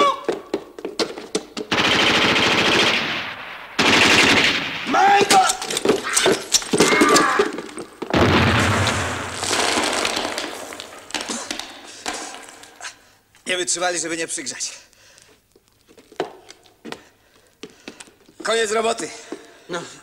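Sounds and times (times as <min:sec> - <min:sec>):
automatic gunfire bursts: 0:01.7 - 0:05.0.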